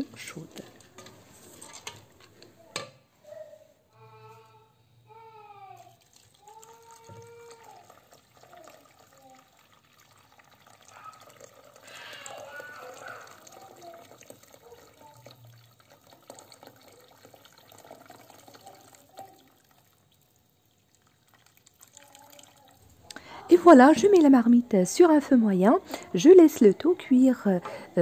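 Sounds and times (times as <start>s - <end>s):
water pouring into metal pot: 5.8s - 23.1s.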